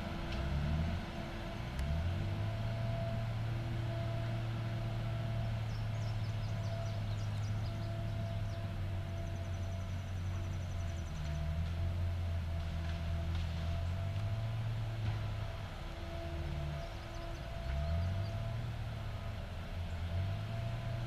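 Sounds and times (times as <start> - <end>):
diesel engine running under load: 0.0 - 21.0
faint steady whine: 0.0 - 21.0
birds chirping: 5.4 - 11.3.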